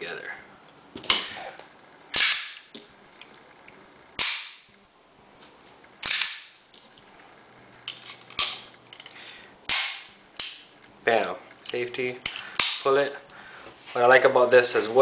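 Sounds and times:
pistol action metallic clacks: 0:06.0 - 0:06.6.

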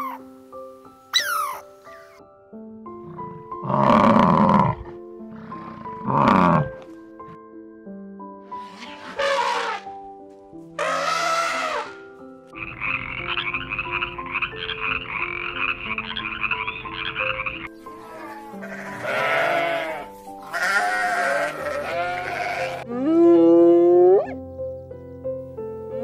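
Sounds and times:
background music: 0:00.0 - 0:26.0
sheep bleating: 0:10.8 - 0:12.0, 0:18.0 - 0:23.0
rattling croak-like animal call: 0:12.6 - 0:19.8.

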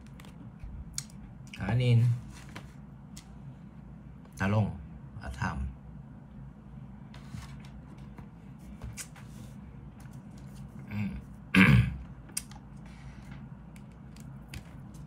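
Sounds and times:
man clearing throat: 0:11.5 - 0:12.1.

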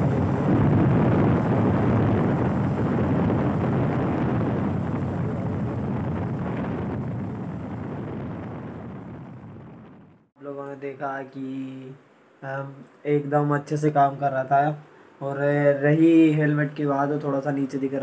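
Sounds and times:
wind rushing over microphone: 0:00.0 - 0:10.3.

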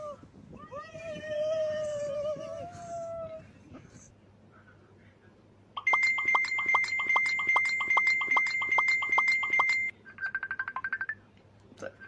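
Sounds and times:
steady high tone: 0:05.8 - 0:09.9.

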